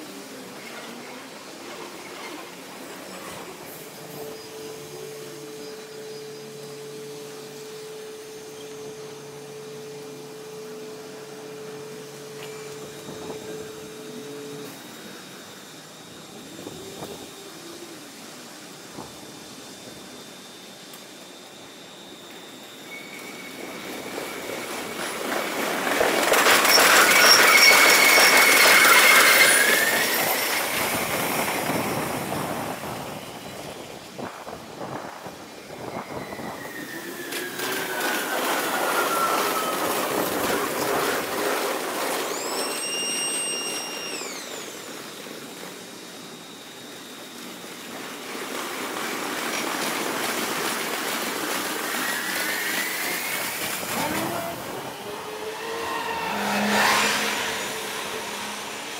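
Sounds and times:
sped-up electric trains passing: 0.0s - 58.9s
whining tones sliding in pitch: 0.4s - 48.2s, 51.5s - 58.9s.

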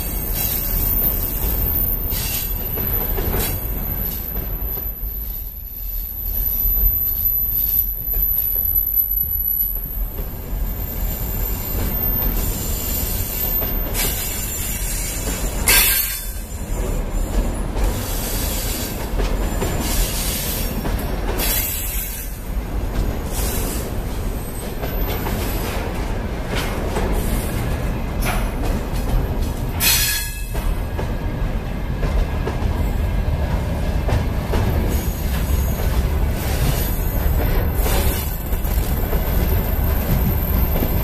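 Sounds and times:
high wheel squeal: 0.0s - 10.0s
train wheel and rail rumble: 0.0s - 41.0s.

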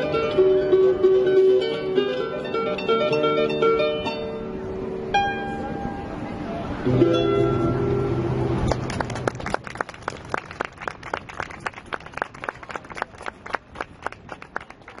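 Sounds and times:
harp notes: 0.0s - 8.9s
hand clapping: 8.7s - 15.0s.

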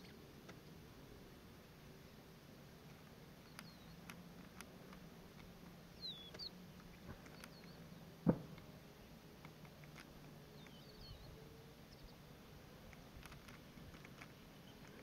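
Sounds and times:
faint bird chirps: 0.0s - 0.8s, 3.4s - 4.1s, 5.9s - 8.1s, 10.5s - 12.3s, 13.6s - 15.0s
low steady hum: 0.0s - 15.0s
sharp knock: 8.2s - 8.5s.

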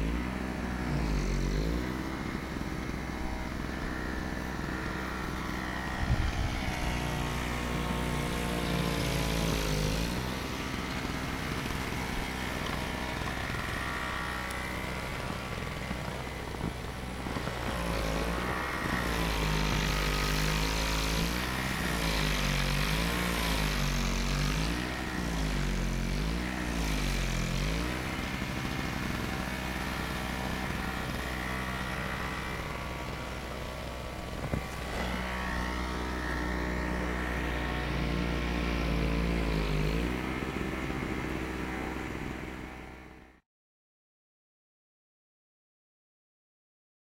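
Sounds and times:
engine revving: 0.0s - 43.4s.

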